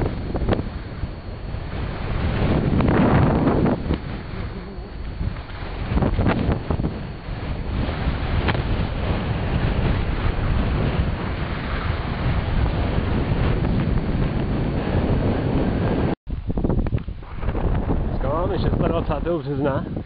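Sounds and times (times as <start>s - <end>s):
wind buffeting microphone: 0.0s - 20.0s
skis sliding over snow: 3.6s - 6.5s, 7.3s - 13.9s.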